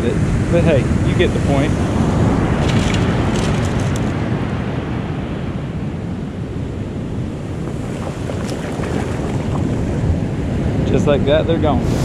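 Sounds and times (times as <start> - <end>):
wind buffeting microphone: 0.0 - 12.0
ocean surf washing up beach: 6.4 - 12.0.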